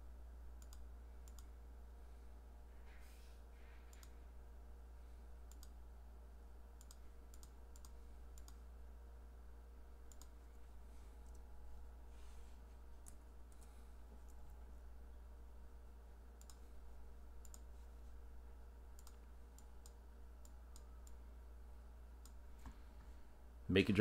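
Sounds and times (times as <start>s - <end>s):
low electrical hum: 0.0s - 24.0s
computer mouse clicking: 0.6s - 1.5s, 3.9s - 4.2s, 5.5s - 5.8s, 6.8s - 8.7s, 10.1s - 10.4s, 16.4s - 16.7s, 17.4s - 17.7s, 19.0s - 21.2s, 22.2s - 22.7s.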